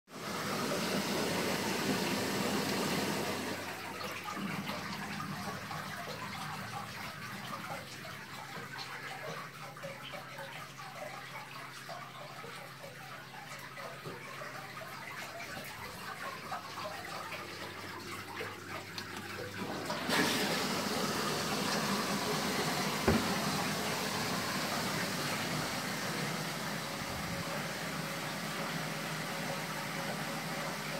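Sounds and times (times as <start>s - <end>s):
water pattering down a wall: 4.0s - 20.4s
short knock: 23.0s - 23.3s.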